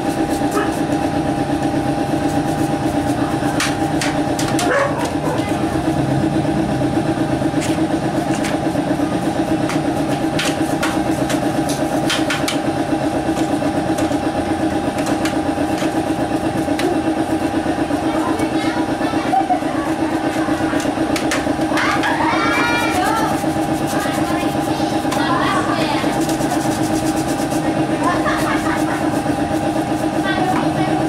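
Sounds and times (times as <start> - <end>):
small engine throbbing: 0.0 - 31.0
paintbrush clicking and scraping: 22.8 - 30.7.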